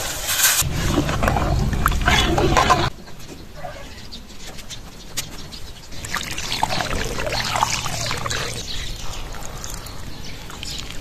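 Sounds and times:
water pouring and splashing: 5.9s - 11.0s.

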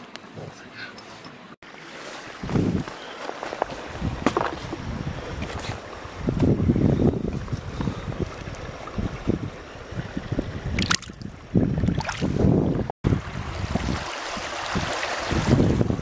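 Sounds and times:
wind buffeting microphone: 2.3s - 3.0s, 3.6s - 16.0s
water splashing in rocky stream: 10.7s - 12.3s.

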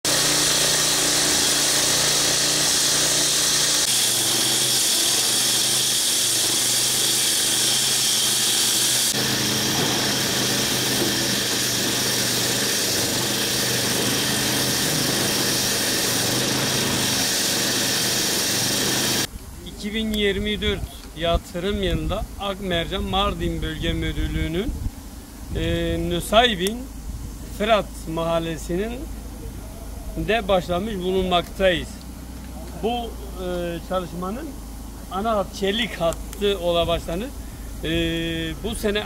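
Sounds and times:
road saw cutting: 0.0s - 19.3s, 30.2s - 39.0s
backhoe diesel engine: 0.0s - 19.8s, 25.0s - 39.0s.

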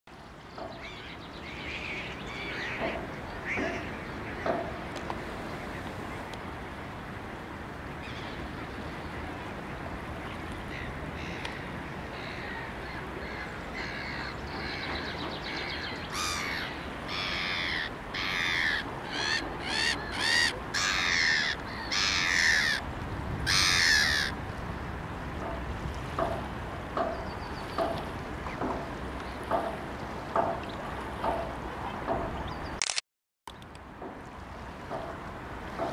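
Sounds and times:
water: 0.1s - 32.9s, 33.5s - 35.9s
wind: 0.1s - 35.9s
crow cawing: 16.2s - 22.8s, 23.5s - 24.3s.

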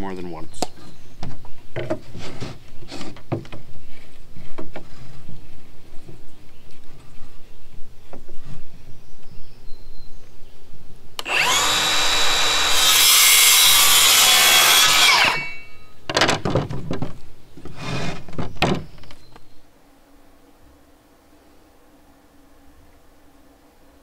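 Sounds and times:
cordless saw cutting wood: 11.2s - 15.7s.

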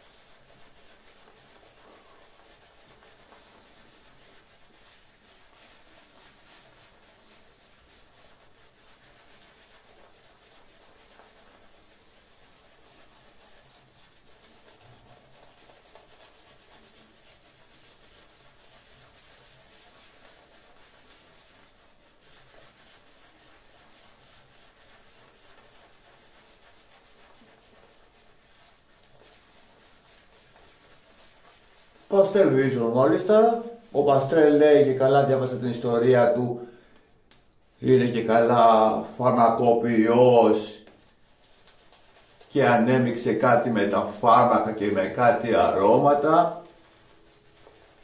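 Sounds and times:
shaving brush rubbing lather: 0.0s - 48.0s.

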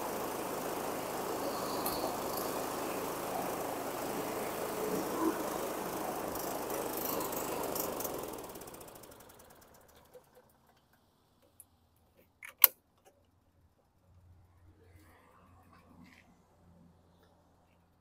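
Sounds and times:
lawn mower engine stalling: 0.0s - 13.2s.

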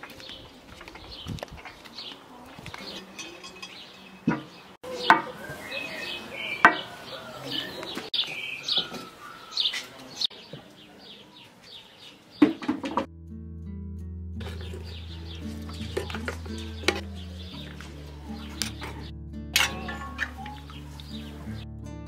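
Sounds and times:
small birds chirping: 0.0s - 12.6s, 14.4s - 19.1s, 19.7s - 21.7s
kitchenware clinking: 2.7s - 5.3s, 14.4s - 17.7s, 19.6s - 20.6s.

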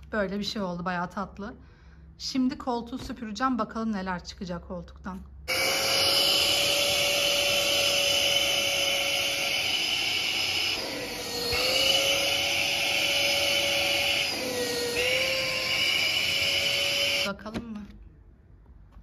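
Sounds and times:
vacuum cleaner motor whine: 5.5s - 17.3s.

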